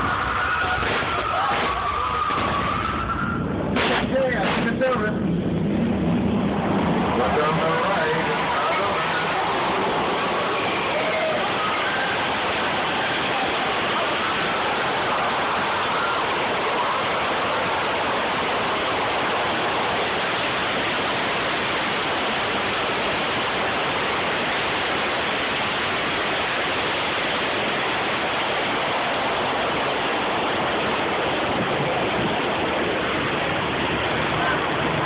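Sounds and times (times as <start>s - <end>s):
flood water rushing and splashing: 0.0s - 35.0s.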